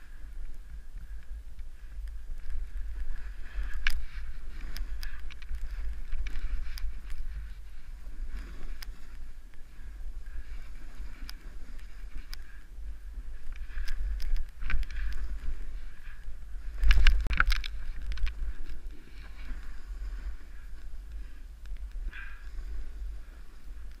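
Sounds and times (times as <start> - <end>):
wind rumble on microphone: 0.0 - 24.0
skis hissing through snow: 6.5 - 9.3.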